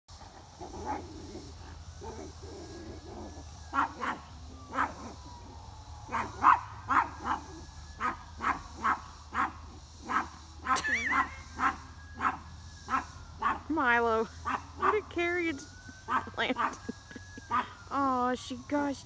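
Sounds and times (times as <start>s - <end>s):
dog barking: 3.7s - 5.0s, 6.1s - 13.6s, 14.4s - 15.0s.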